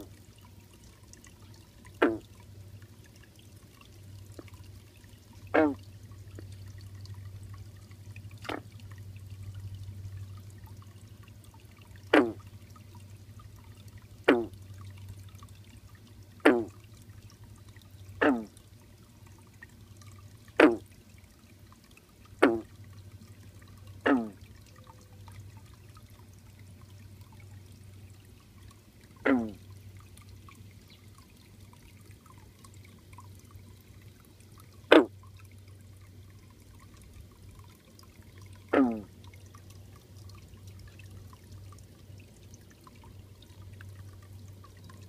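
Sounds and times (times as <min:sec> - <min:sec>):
water trickling: 0:00.0 - 0:45.0
frog croaking: 0:02.0 - 0:02.2, 0:05.5 - 0:05.8, 0:12.1 - 0:12.4, 0:14.2 - 0:14.5, 0:16.4 - 0:16.7, 0:18.2 - 0:18.6, 0:20.6 - 0:20.8, 0:22.4 - 0:22.7, 0:24.0 - 0:24.4, 0:29.2 - 0:29.6, 0:34.9 - 0:35.2, 0:38.7 - 0:39.1.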